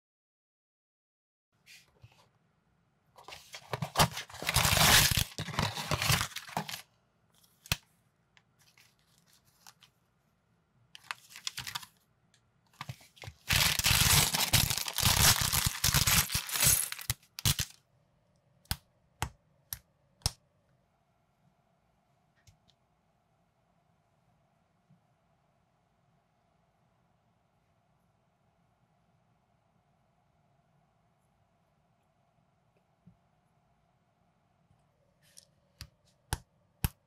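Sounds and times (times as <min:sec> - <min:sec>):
packaging crinkling: 0:03.5 - 0:06.8, 0:11.0 - 0:12.0, 0:12.8 - 0:17.8
cardboard box tearing: 0:03.8 - 0:06.8, 0:13.5 - 0:17.6.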